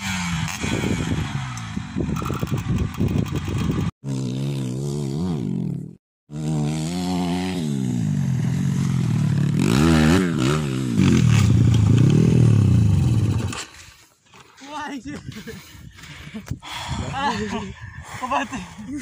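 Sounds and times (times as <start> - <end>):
dirt bike engine revving: 0.0 - 13.6.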